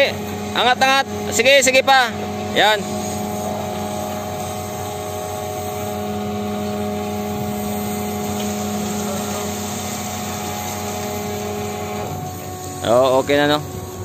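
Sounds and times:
crane machinery hum: 0:00.0 - 0:14.0.

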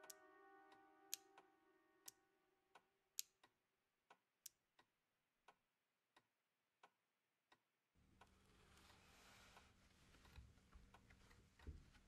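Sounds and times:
clock ticking: 0:00.0 - 0:01.4.

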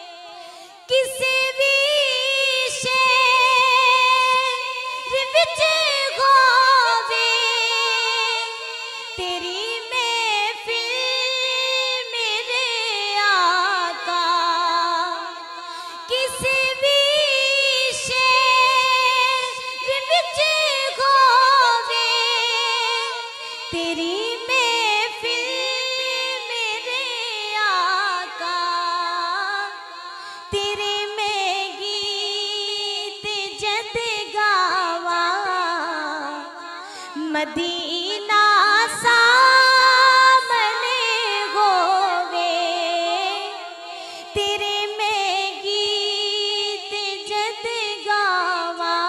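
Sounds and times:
woman singing devotional song: 0:00.0 - 0:49.0.

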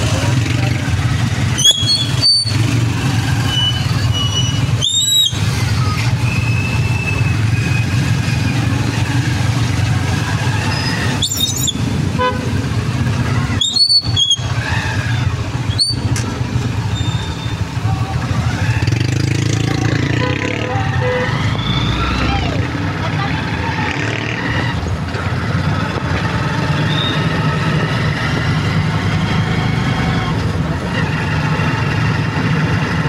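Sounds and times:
traffic engine rumble: 0:00.0 - 0:33.0.

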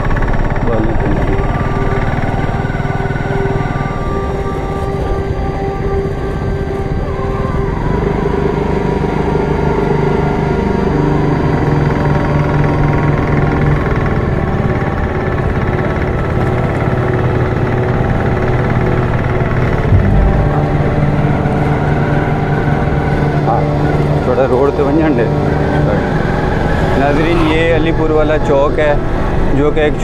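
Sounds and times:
vehicle engine running: 0:08.0 - 0:23.2
low thump: 0:19.9 - 0:21.2.

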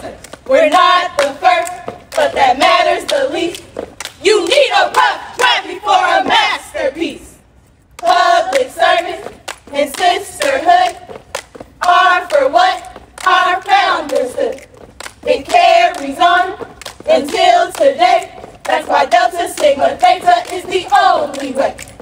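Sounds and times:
women singing chant-like phrases: 0:00.0 - 0:07.4, 0:08.0 - 0:11.2, 0:11.8 - 0:22.0.

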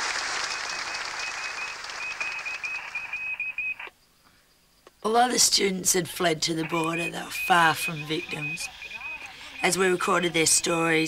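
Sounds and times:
many hands clapping: 0:00.0 - 0:03.4.

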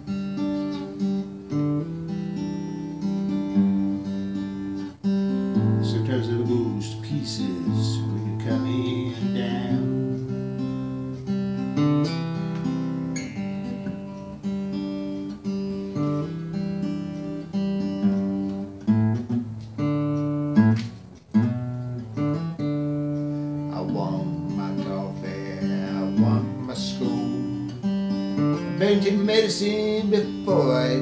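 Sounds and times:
acoustic guitar strumming chords: 0:00.0 - 0:31.0.

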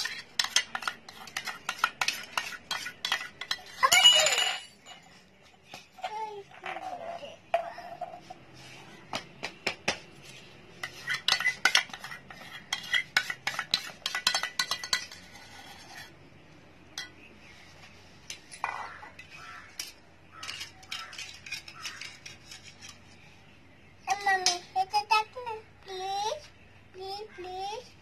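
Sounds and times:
spoon clinking on glass and bowl: 0:03.8 - 0:05.1.

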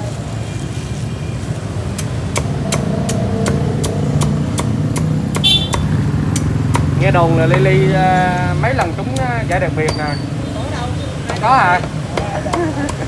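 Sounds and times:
cleaver chopping on wooden block: 0:02.0 - 0:07.7, 0:11.2 - 0:13.0.

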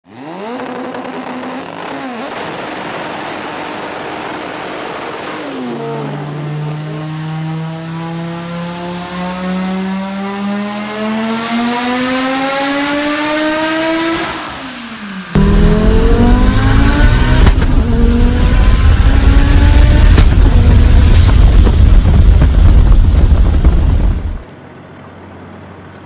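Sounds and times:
car engine revving on dyno: 0:00.1 - 0:24.4.

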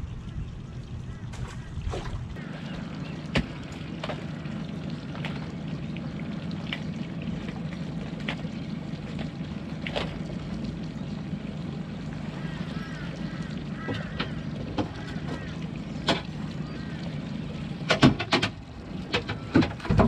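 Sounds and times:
low rumble: 0:00.0 - 0:17.9
water dripping off rope: 0:00.2 - 0:17.2.

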